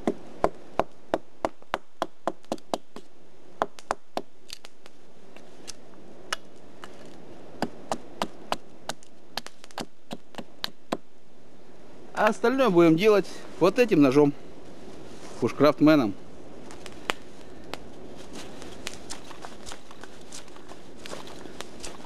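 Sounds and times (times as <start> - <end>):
hatchet splitting wood: 0.0 - 4.7, 7.6 - 11.0.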